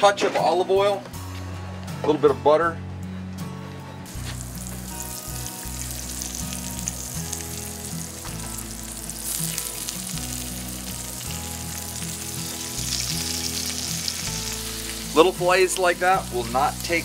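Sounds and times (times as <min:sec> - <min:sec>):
fish frying in a skillet: 0:04.2 - 0:17.0.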